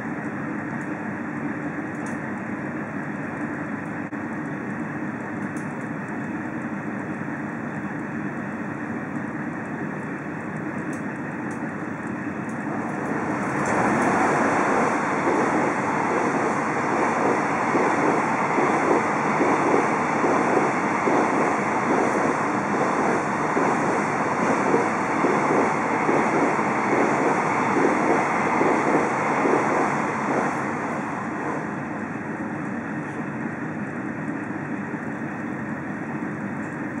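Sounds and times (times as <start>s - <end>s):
train wheels clattering over rail joints: 12.8s - 30.5s.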